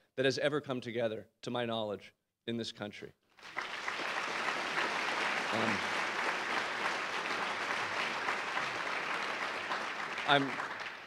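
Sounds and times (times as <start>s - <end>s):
large audience applauding: 3.4s - 11.0s.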